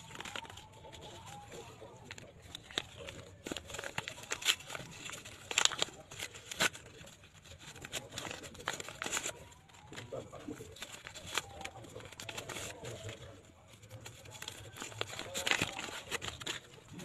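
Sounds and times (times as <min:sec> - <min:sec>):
paper envelopes crinkling: 0:00.0 - 0:17.0.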